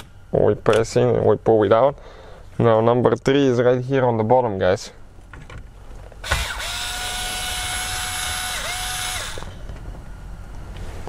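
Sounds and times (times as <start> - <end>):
cordless screwdriver whining: 6.2 - 9.7.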